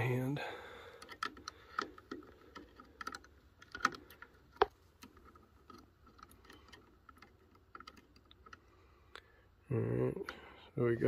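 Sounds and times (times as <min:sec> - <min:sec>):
multimeter probes clicking and tapping: 0:00.9 - 0:09.3.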